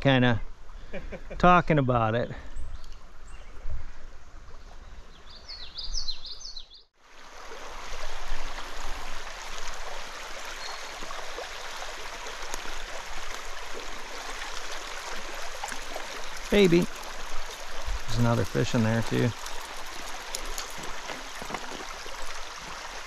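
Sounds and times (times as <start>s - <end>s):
stream water running: 0.0s - 23.0s
small bird chirping: 5.1s - 6.9s.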